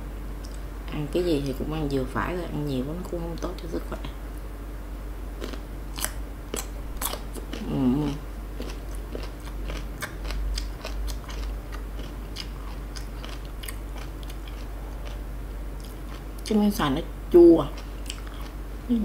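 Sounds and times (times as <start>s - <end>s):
crunchy chewing: 5.4s - 16.6s, 17.7s - 18.6s
person humming: 7.6s - 8.2s.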